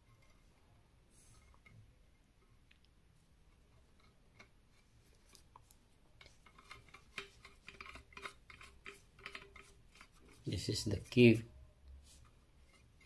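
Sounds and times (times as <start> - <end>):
metal pipe fittings clicking: 5.3 - 11.1.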